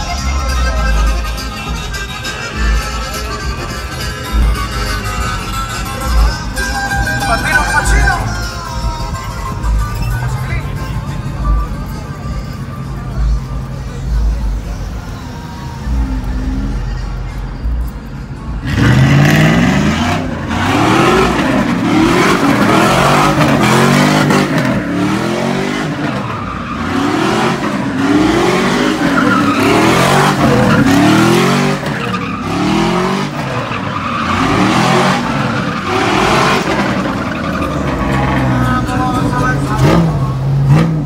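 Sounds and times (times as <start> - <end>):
truck engine revving: 0.0 - 41.0
tyres squealing on asphalt: 0.0 - 41.0.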